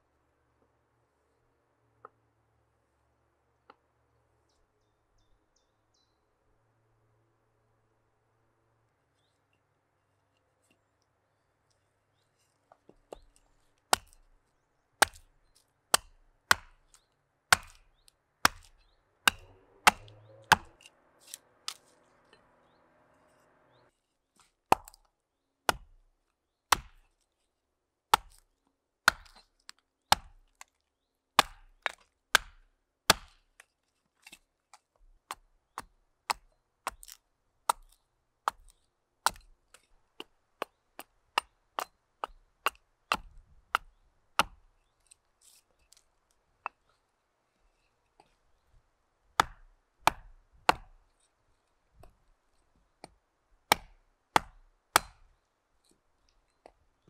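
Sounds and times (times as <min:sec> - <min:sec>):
axe chopping wood: 0:13.9 - 0:14.3, 0:15.0 - 0:15.3, 0:15.9 - 0:21.8, 0:24.7 - 0:25.1, 0:25.7 - 0:26.0, 0:26.7 - 0:27.0, 0:28.1 - 0:28.5, 0:29.1 - 0:29.5, 0:30.1 - 0:30.6, 0:31.4 - 0:33.5, 0:35.3 - 0:44.7, 0:49.4 - 0:51.0, 0:53.0 - 0:55.3.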